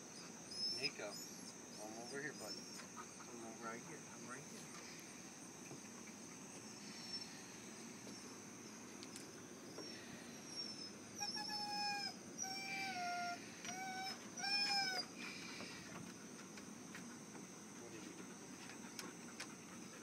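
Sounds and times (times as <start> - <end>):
dog whining: 0.0 - 3.2, 9.8 - 15.3.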